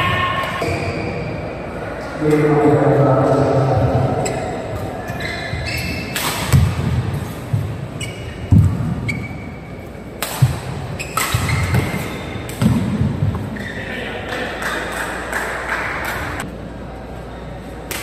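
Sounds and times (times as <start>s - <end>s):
shoes squeaking on court: 4.2s - 12.7s
rackets hitting shuttlecock: 6.0s - 7.3s, 10.2s - 13.6s.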